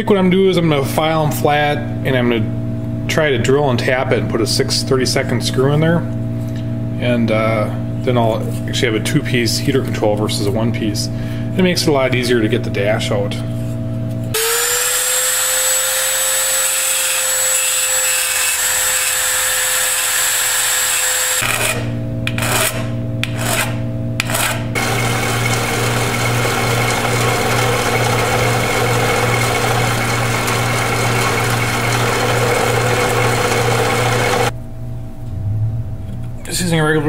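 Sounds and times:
drill press humming: 14.3 - 22.5, 24.2 - 34.5
rotary grinder whining: 14.4 - 34.5.

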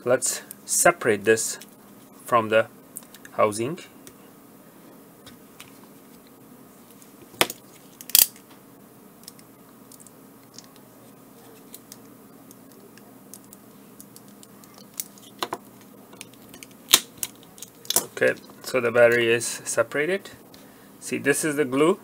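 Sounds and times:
sharp plastic cracks: 7.4 - 8.4, 16.2 - 18.1.

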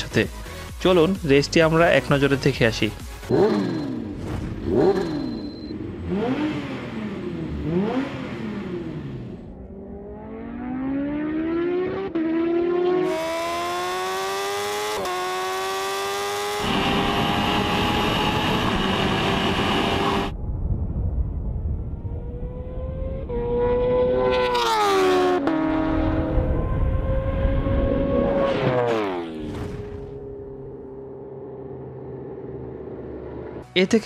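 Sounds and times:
motorcycle engine revving and accelerating: 3.2 - 20.3, 22.2 - 33.6
wind rushing: 16.8 - 24.2.

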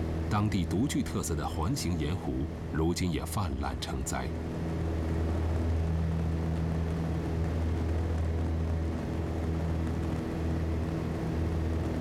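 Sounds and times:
small plane engine droning: 0.0 - 12.0.

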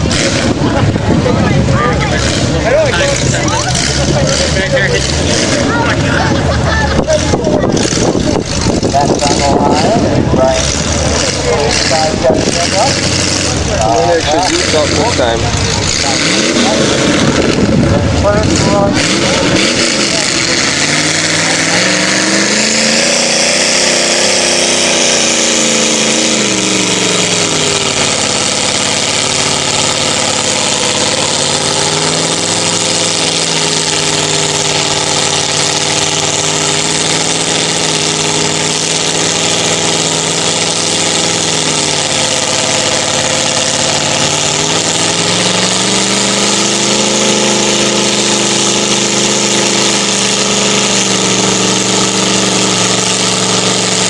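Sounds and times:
truck engine revving: 0.0 - 54.0.

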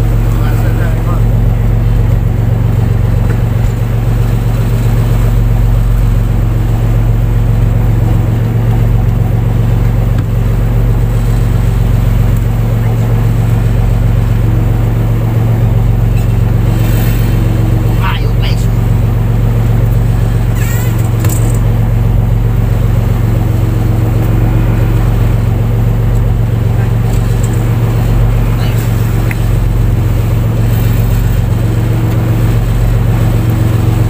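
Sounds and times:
boat engine droning: 0.0 - 34.0.

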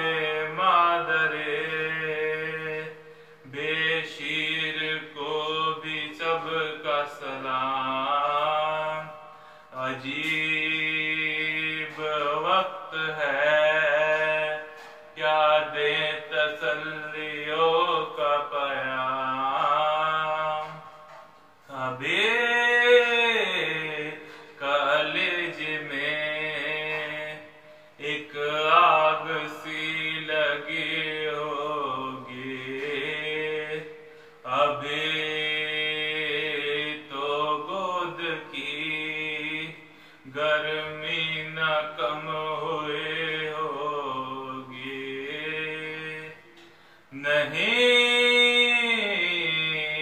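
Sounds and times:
man chanting a lament: 0.0 - 50.0
man chanting solo: 21.7 - 46.4.

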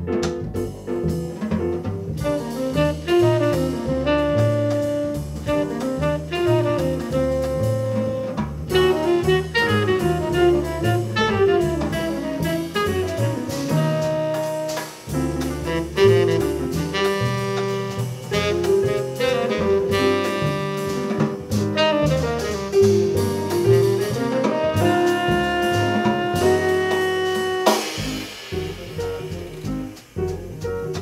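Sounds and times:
acoustic piano: 0.0 - 31.0
drum kit: 0.0 - 31.0
upright double bass: 0.0 - 31.0
tenor saxophone melody: 2.3 - 14.9, 15.8 - 22.7, 24.6 - 28.2.

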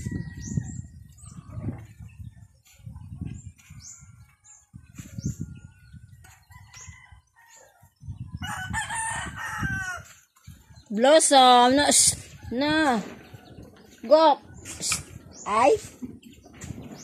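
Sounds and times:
wind buffeting microphone: 0.0 - 17.0
rooster crowing: 8.4 - 10.0.

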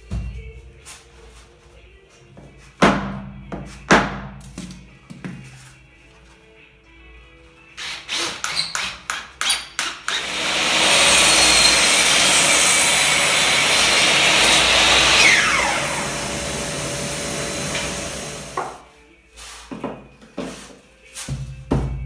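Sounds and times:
falling motor whine: 10.2 - 18.6
electric machine running: 10.2 - 18.8.

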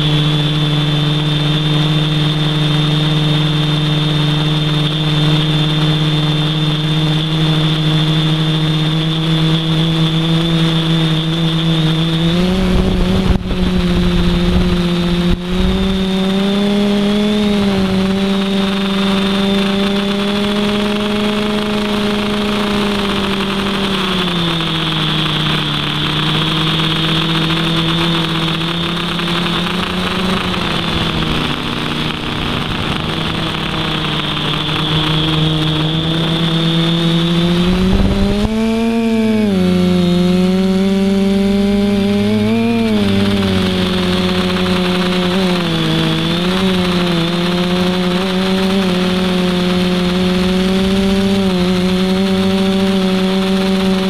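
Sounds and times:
drone motors humming: 0.0 - 54.0.

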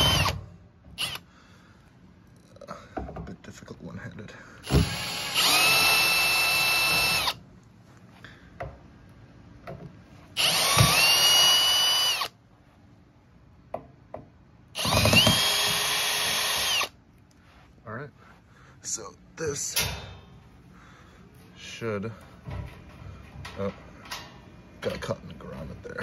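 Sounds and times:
power drill whining: 0.0 - 0.4, 1.0 - 1.3, 4.6 - 7.4, 10.4 - 12.4, 14.8 - 17.0.

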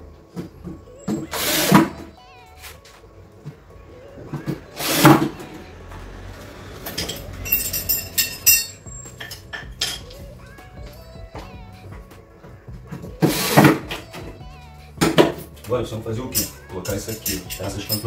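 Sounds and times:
cordless drill driving screws: 1.3 - 1.9
metallic clinking of screws: 6.8 - 10.2, 16.3 - 18.0.

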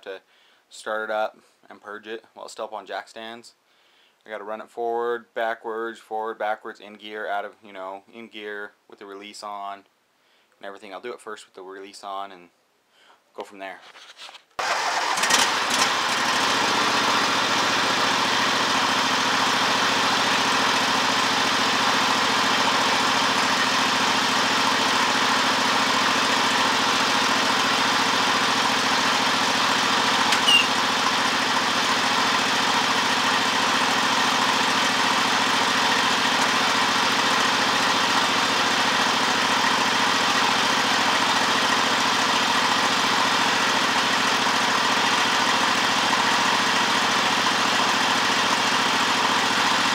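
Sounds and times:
garden tractor engine running: 14.6 - 49.9
sharp chirp: 30.3 - 30.8.

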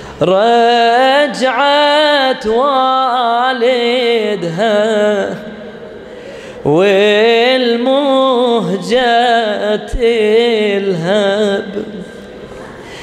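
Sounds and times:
man chanting into microphone: 0.0 - 6.0, 6.6 - 12.5.

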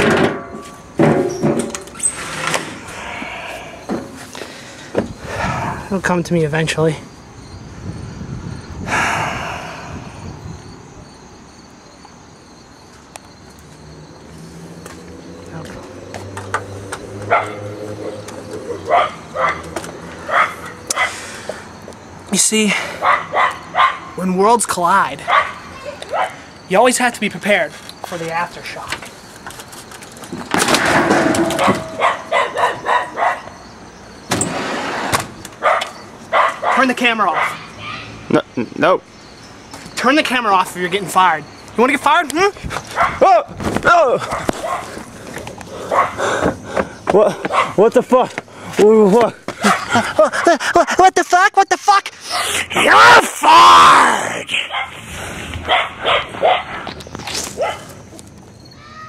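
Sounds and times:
sharp knocks: 0.0 - 1.9, 30.4 - 32.2
insects chirping: 0.0 - 59.0
dog yapping: 17.3 - 17.6, 18.8 - 19.6, 20.3 - 21.1, 23.0 - 24.1, 25.3 - 26.4, 31.5 - 33.5, 35.6 - 36.8, 37.4 - 38.1, 43.0 - 43.2, 44.3 - 45.0, 45.9 - 46.3, 47.4 - 47.8, 55.7 - 56.8, 57.6 - 57.9.

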